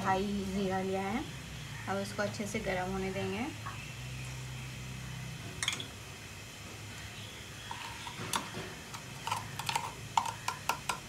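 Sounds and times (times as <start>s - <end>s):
seeds popping in hot oil: 7.6s - 11.0s.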